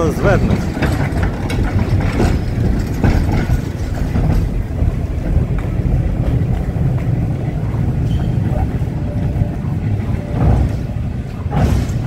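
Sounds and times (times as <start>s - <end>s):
metal clanks: 0.0s - 5.4s
cable car rumbling on rails: 0.0s - 12.0s.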